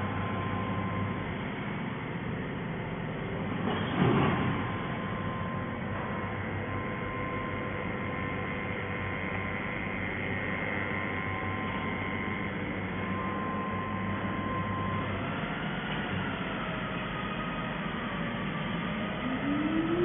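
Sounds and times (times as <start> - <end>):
cnc router machine humming: 0.0 - 20.0
faint high steady tone: 4.7 - 15.2.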